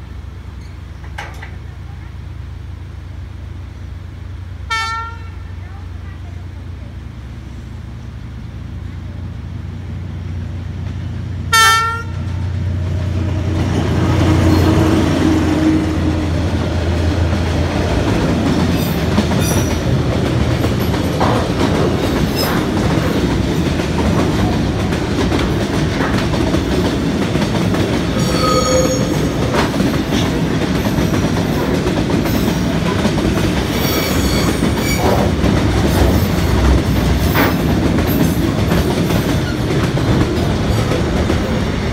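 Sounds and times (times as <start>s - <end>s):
locomotive engine rumbling: 0.0s - 41.9s
wheels clickety-clack over rail joints: 0.6s - 2.2s, 8.8s - 41.9s
train horn blast: 4.6s - 5.6s, 11.4s - 12.6s
high squeals: 28.1s - 29.6s.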